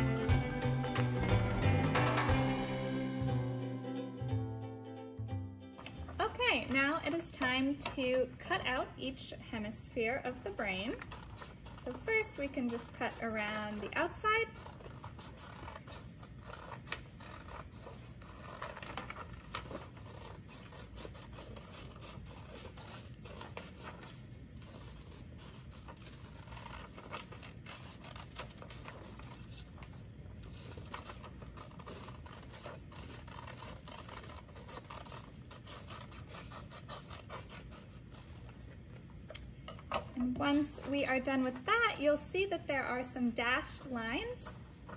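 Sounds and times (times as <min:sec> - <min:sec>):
scissors cutting paper: 0:10.5 - 0:41.8
paper rustling: 0:10.5 - 0:42.2, 0:43.7 - 0:44.9.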